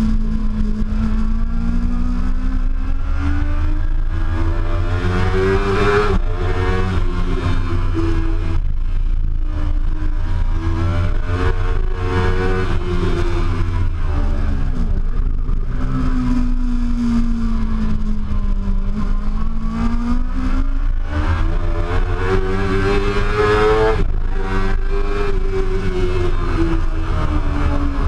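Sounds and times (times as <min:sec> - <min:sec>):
motorcycle engine running at speed: 0:00.0 - 0:28.0.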